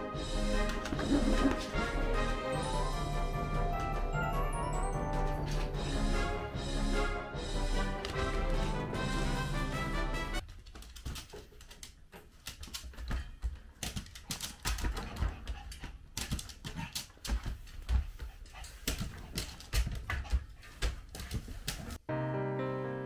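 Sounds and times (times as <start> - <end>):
dog claws clicking on hard floor: 10.4 - 22.0.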